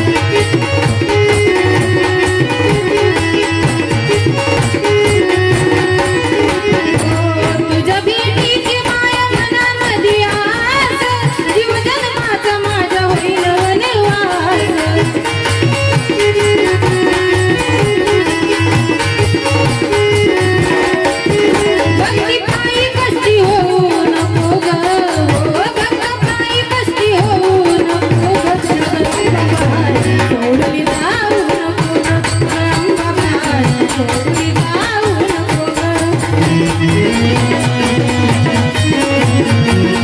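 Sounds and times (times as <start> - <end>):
steady drum beat: 0.0 - 40.0
woman singing: 0.0 - 40.0.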